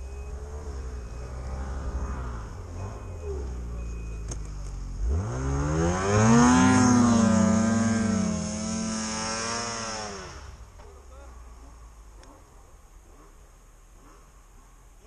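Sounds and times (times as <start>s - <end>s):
snowmobile engine revving: 0.0s - 10.6s.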